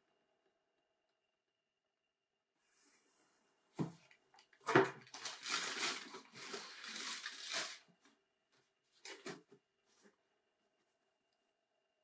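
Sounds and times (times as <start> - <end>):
packing paper rustling: 4.9 - 7.9.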